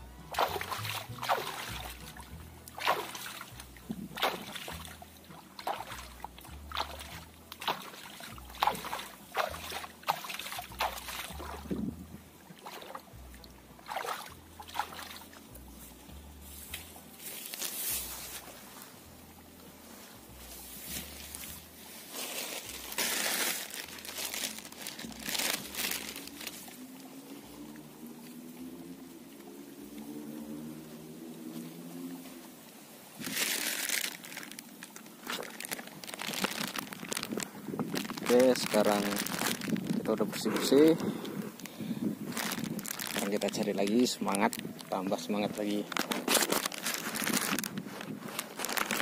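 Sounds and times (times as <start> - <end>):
hands splashing water: 0.2 - 11.9, 12.5 - 15.4, 20.6 - 27.1, 33.2 - 39.9
bag crinkling: 22.1 - 26.7, 33.2 - 40.8, 41.6 - 49.0.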